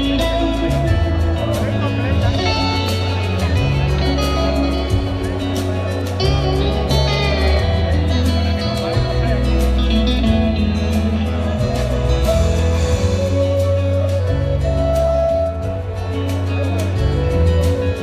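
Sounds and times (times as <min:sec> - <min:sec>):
electric guitar solo: 0:00.0 - 0:18.0
live rock band playing: 0:00.0 - 0:18.0.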